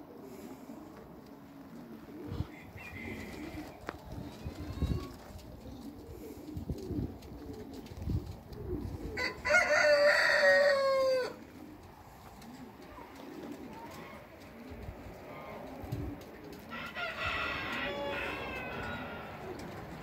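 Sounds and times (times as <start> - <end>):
rooster crowing: 2.4 - 3.8, 9.2 - 11.4, 16.7 - 19.7.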